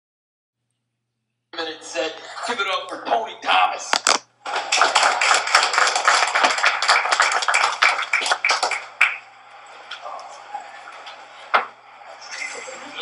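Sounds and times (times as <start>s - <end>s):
audience applauding: 4.0s - 9.3s.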